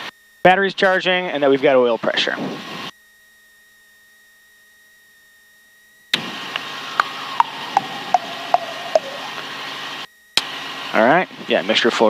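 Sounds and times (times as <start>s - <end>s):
faint high whine: 5.9s - 9.8s
helicopter engine idling: 6.2s - 9.5s.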